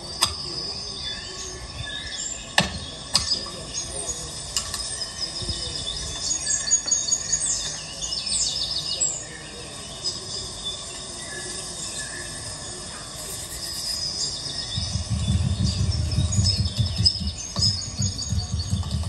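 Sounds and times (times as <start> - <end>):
small birds chirping: 0.0 - 19.0
sharp clicks: 0.2 - 0.5.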